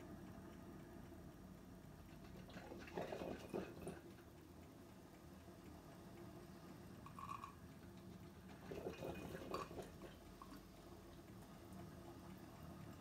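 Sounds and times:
coffee maker gurgling: 2.4s - 4.1s, 7.0s - 7.6s, 8.4s - 10.6s.

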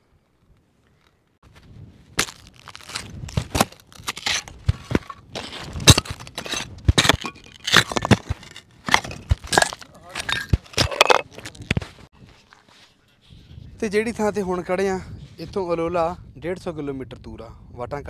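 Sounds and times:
footsteps crunching on stony ground: 1.0s - 12.8s.

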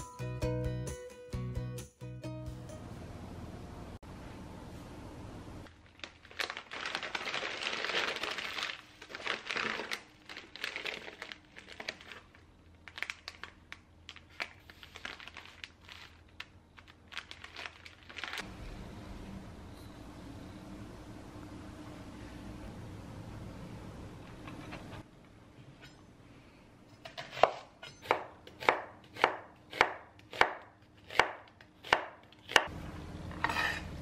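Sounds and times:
plastic packaging crinkling: 5.7s - 18.5s.

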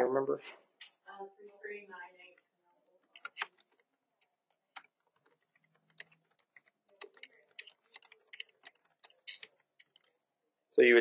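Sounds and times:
laptop keyboard keystrokes: 3.1s - 10.2s.

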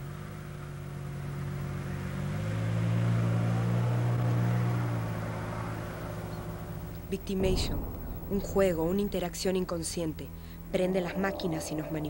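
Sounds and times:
car driving past: 1.6s - 9.4s.

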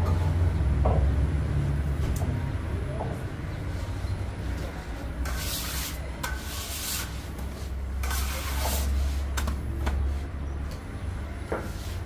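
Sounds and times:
low hum of bakery machinery: 0.0s - 12.0s
rough scraping strokes: 5.2s - 9.4s.

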